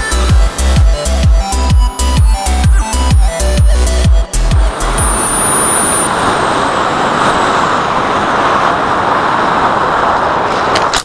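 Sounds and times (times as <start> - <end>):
high motor whine: 0.0 - 8.2
wind and propeller rush: 0.0 - 11.0.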